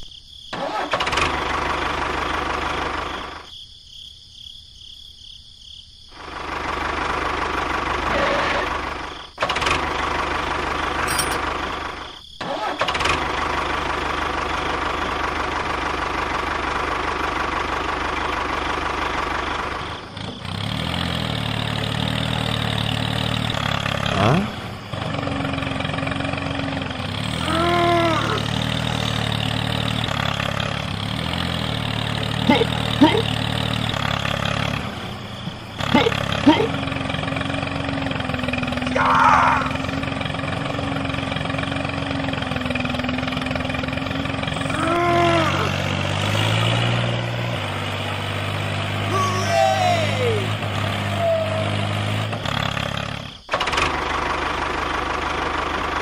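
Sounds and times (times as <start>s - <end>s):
tractor engine running: 0.5s - 3.5s, 6.1s - 56.0s.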